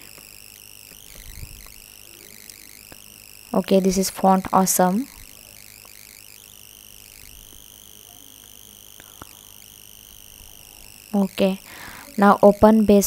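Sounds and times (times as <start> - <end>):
microphone hiss: 0.0 - 13.0.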